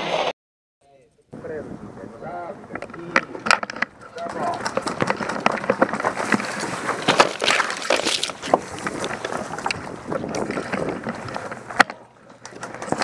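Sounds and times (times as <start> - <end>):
footsteps on dirt path: 3.9 - 11.4
rustling through tall grass: 4.8 - 11.4.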